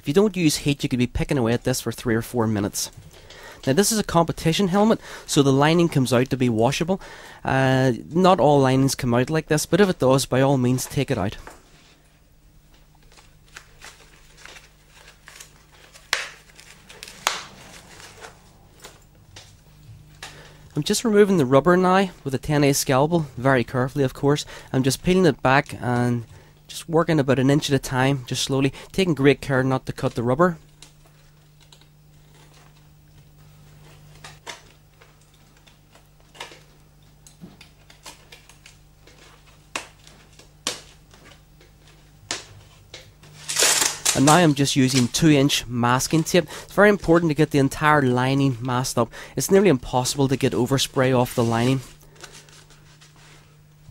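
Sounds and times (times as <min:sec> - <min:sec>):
faint low hum: 0:00.0 - 0:53.9
fabric lining rustling: 0:13.1 - 0:19.7.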